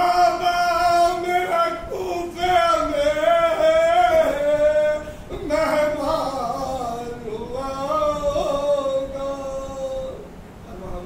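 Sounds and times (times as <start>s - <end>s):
man chanting a lament: 0.0s - 11.0s.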